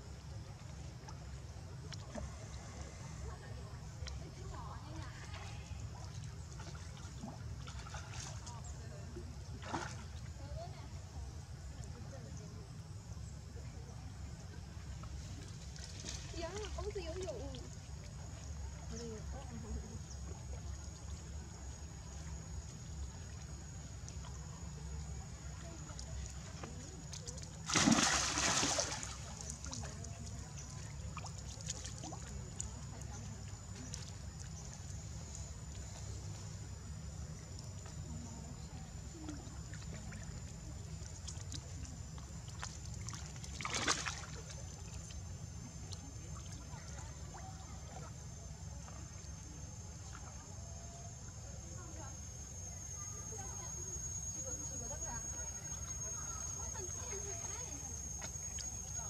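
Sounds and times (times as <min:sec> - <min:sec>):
water sloshing and lapping: 0:00.4 - 0:11.0, 0:14.5 - 0:50.6
water splash: 0:27.6 - 0:29.8, 0:43.5 - 0:44.4
high-pitched whine: 0:30.6 - 0:59.0.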